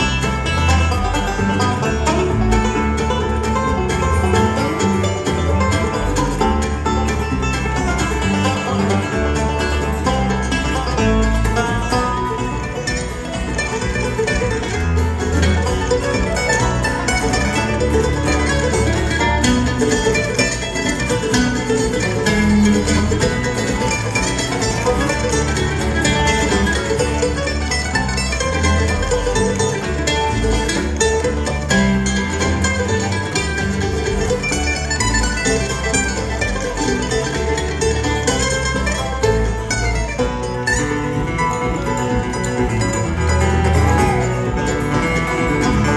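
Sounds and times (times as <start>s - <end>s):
acoustic guitar: 0.0s - 45.9s
picked banjo: 0.0s - 45.9s
upright bass: 0.0s - 45.9s.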